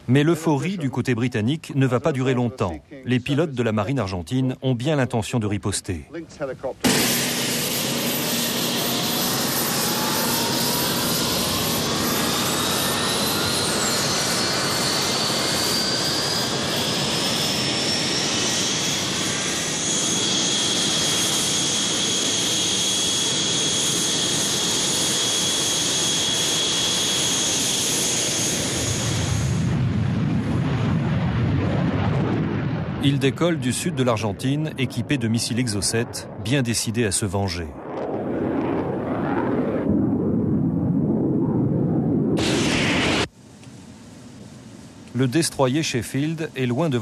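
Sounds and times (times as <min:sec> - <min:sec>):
jet engine whine rising: 0:06.8 - 0:31.0, 0:37.8 - 0:43.4.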